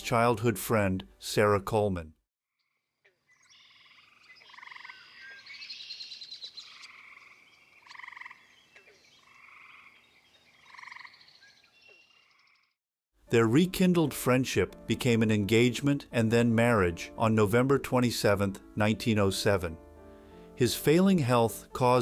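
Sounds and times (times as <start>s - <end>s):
tree frogs trilling: 2.5s - 12.8s.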